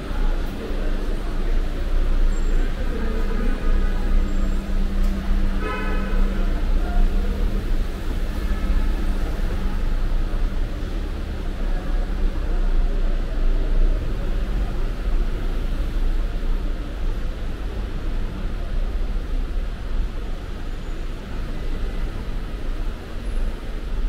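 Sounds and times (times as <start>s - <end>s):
road traffic rumble: 0.0s - 24.0s
vehicle horn toot: 5.5s - 6.5s.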